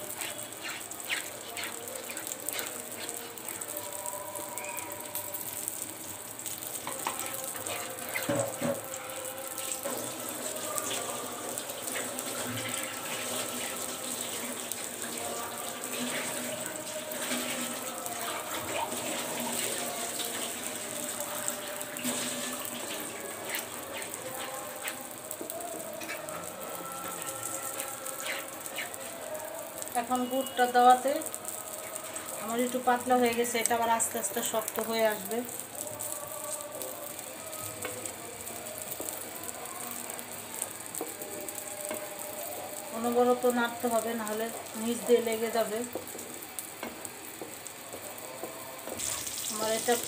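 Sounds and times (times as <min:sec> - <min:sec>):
wooden spatula scraping a pan: 0:00.0 - 0:03.4
wooden spatula stirring wet mix: 0:00.0 - 0:05.6, 0:06.7 - 0:30.6, 0:37.8 - 0:49.8.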